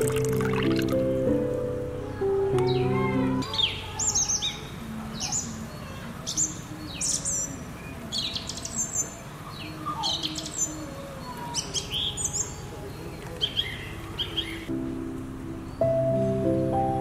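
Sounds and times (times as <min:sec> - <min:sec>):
small songbirds chirping: 0:02.6 - 0:14.8.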